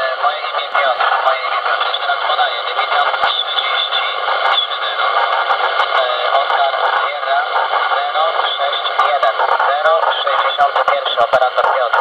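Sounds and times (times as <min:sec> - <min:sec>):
radio static: 0:00.0 - 0:12.0
voice over radio speaker: 0:00.0 - 0:12.0.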